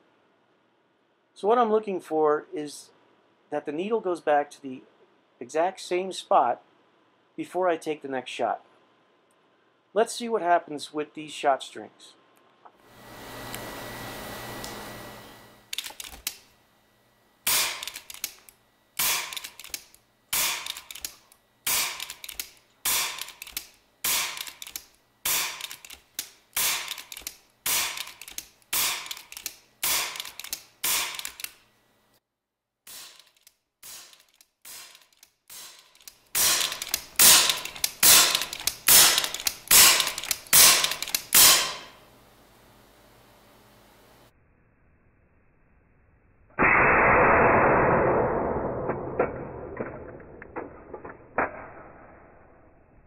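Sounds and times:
air rifle shots: 0:17.5 - 0:18.0, 0:19.0 - 0:19.4, 0:20.3 - 0:20.8, 0:21.7 - 0:22.2, 0:22.8 - 0:23.4, 0:24.0 - 0:24.6, 0:25.2 - 0:25.7, 0:26.6 - 0:27.0, 0:27.6 - 0:28.1, 0:28.7 - 0:29.2, 0:29.8 - 0:31.4, 0:36.4 - 0:42.0.

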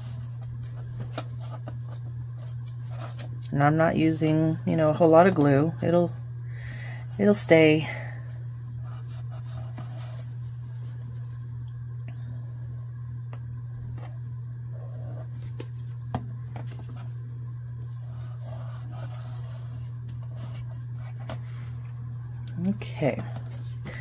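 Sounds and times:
paper being folded by hand: 0:00.0 - 0:03.5, 0:08.6 - 0:11.5, 0:17.8 - 0:22.0
steady low hum: 0:00.0 - 0:24.0.

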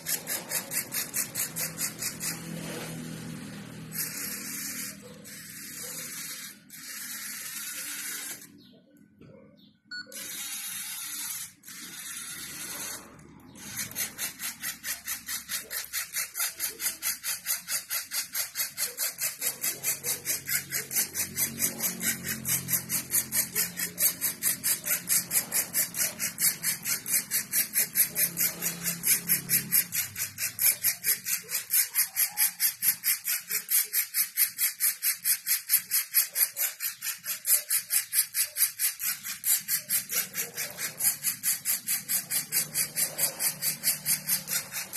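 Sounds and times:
small electric motors whirring: 0:00.0 - 0:08.7, 0:09.9 - 0:44.9.

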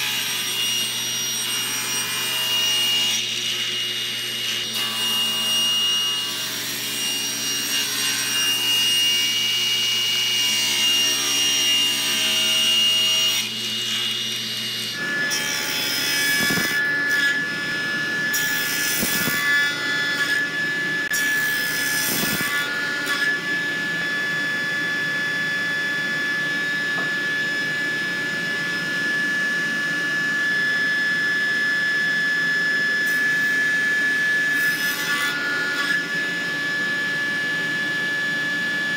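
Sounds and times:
table saw cutting wood: 0:00.0 - 0:38.9.

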